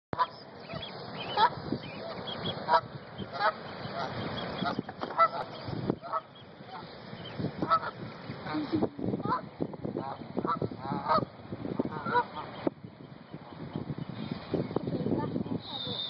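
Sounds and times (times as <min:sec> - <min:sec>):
geese honking: 0:00.2 - 0:12.8.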